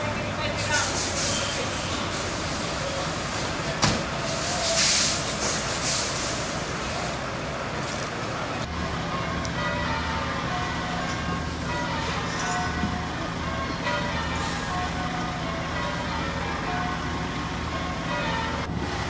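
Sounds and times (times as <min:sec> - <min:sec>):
diesel engines running: 0:00.0 - 0:19.0.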